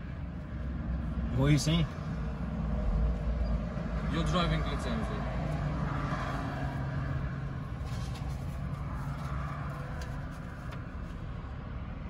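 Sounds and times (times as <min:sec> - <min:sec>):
paper rustling: 0:07.8 - 0:10.8.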